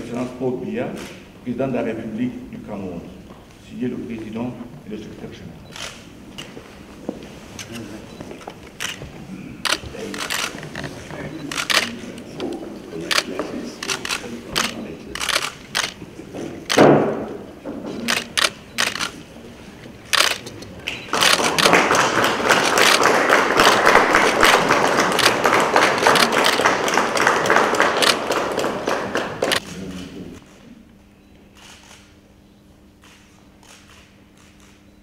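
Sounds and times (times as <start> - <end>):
camera shutter clicks: 5.7 - 6.5, 9.6 - 10.8, 11.4 - 12.2, 13.1 - 16.0, 18.0 - 19.2, 20.1 - 20.6, 21.2 - 21.7, 22.7 - 23.0, 26.1 - 26.6, 28.0 - 28.2, 33.0 - 34.8
crowd applauding: 13.0 - 16.2, 20.2 - 29.7
thump: 16.8 - 18.0.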